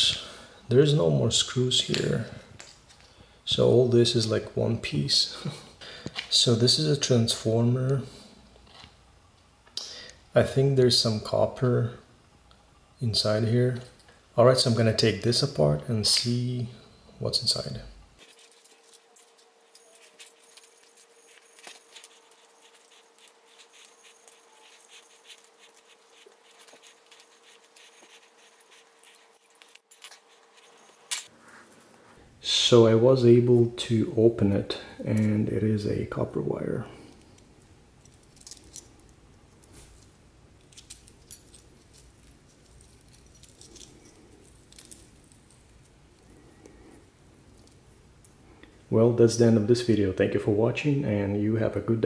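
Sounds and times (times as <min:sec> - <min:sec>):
faint steady hum: 0:00.0 - 0:52.0
metal strips clinking: 0:18.2 - 0:31.3
tools clicking and scraping metal: 0:18.2 - 0:31.9, 0:38.0 - 0:46.8.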